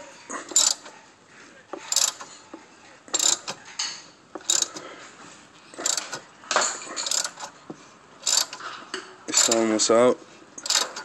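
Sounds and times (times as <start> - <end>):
ratcheting wrench clicking: 0.5 - 1.0, 1.8 - 2.4, 3.1 - 3.6, 4.4 - 4.8, 5.8 - 6.3, 7.0 - 7.6, 8.2 - 8.7, 9.3 - 9.7, 10.6 - 11.0.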